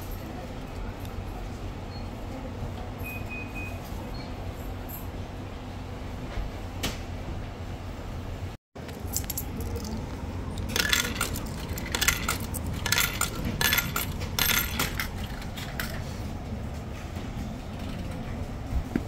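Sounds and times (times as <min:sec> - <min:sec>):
coins clinking into vending machine: 0:08.8 - 0:16.2.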